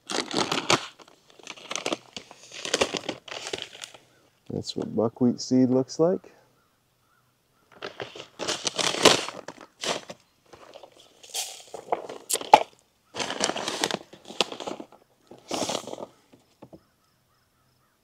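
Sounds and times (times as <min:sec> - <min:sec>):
plastic bag crinkling and rustling: 0:00.0 - 0:04.2, 0:07.7 - 0:16.6.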